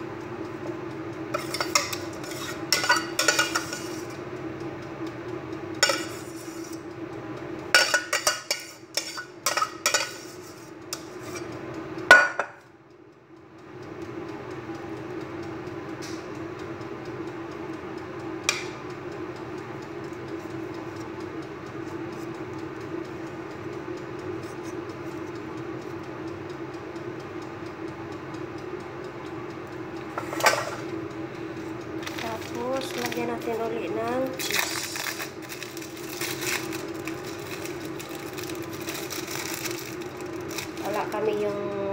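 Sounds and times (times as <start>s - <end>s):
steady hum: 0.0s - 41.9s
metal spoon scraping saucepan: 1.4s - 4.1s, 5.8s - 6.8s, 7.8s - 11.5s.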